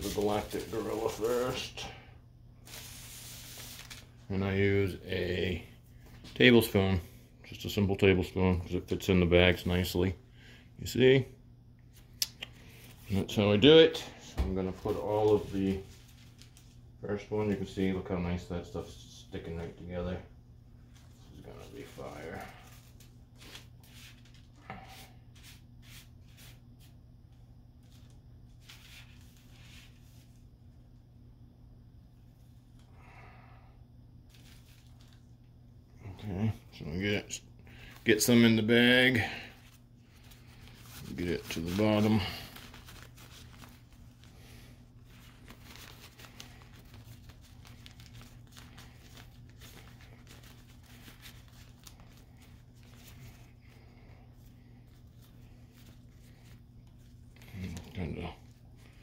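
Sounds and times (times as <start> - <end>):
paper crinkling and rustling: 0.0 - 1.8, 2.6 - 4.2, 14.4 - 16.8, 20.9 - 27.0, 27.8 - 30.5, 34.3 - 35.4, 39.5 - 59.0
faint low hum: 0.0 - 59.0.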